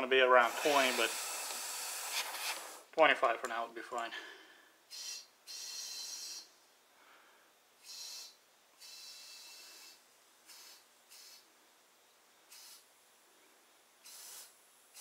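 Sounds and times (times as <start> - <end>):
compressed air hissing: 0.3 - 2.9, 7.8 - 11.5, 12.5 - 12.9, 14.0 - 15.0.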